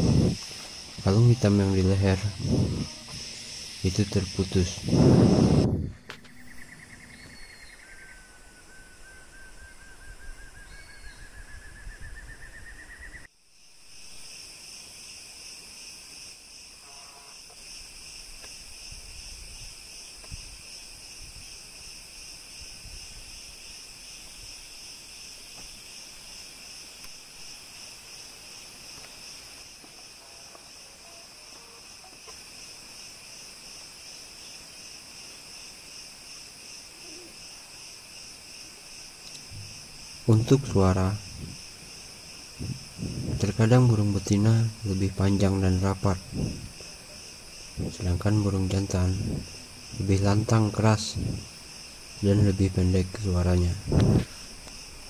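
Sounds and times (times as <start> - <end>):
pulsing insect drone: 0.0 - 55.0
bird trilling song: 6.0 - 13.3.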